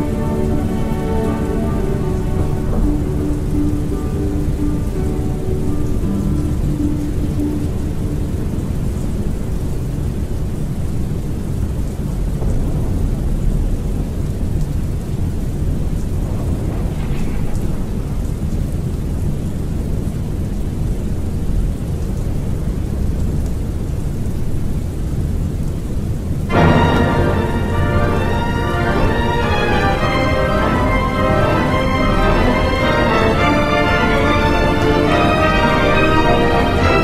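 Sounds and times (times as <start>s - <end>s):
held music note: 0.0s - 9.2s, 26.5s - 37.0s
low rumbling thunder: 0.0s - 25.6s, 26.5s - 37.0s
steady rain: 0.0s - 37.0s.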